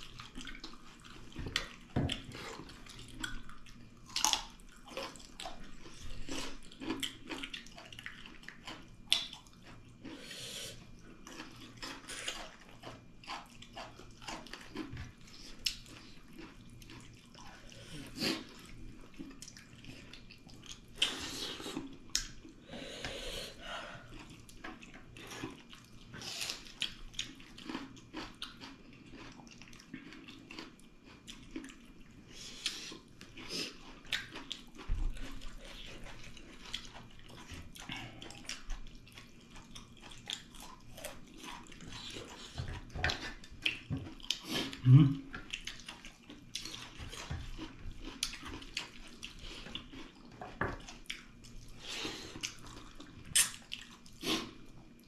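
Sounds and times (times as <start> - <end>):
wet chewing and smacking: 0.0 - 10.2, 10.8 - 22.6, 24.0 - 55.0.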